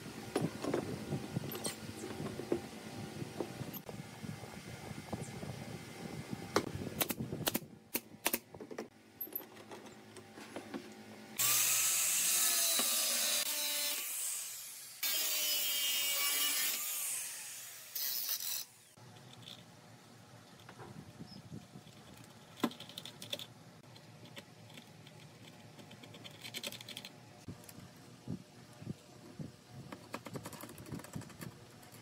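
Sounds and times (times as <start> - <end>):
angle grinder grinding metal: 11.4 - 19.0.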